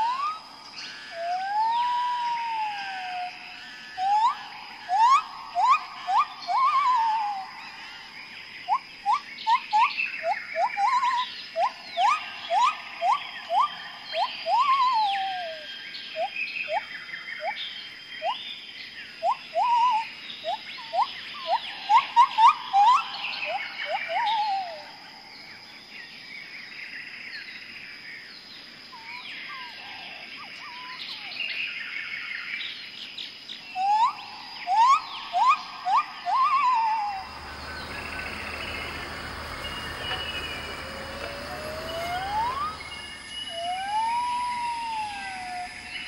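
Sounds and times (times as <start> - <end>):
birds whistling rising notes: 0.0 - 25.6, 33.6 - 46.0
high bird chirps: 3.6 - 18.5, 33.6 - 46.0.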